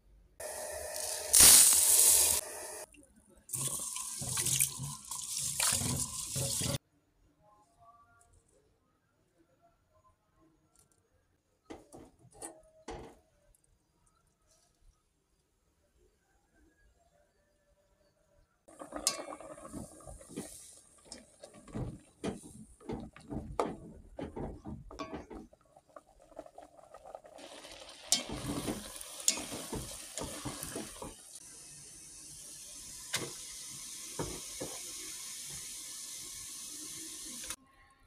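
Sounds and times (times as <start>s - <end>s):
rice boiling hiss: 0.4s - 2.9s, 18.7s - 23.4s, 25.5s - 37.6s
pot clinking: 18.7s - 25.6s, 28.0s - 31.2s.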